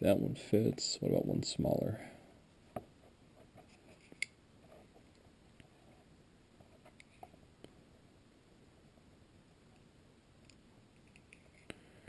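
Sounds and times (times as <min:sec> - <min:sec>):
faint clicks of handling wires: 0:06.6 - 0:07.8.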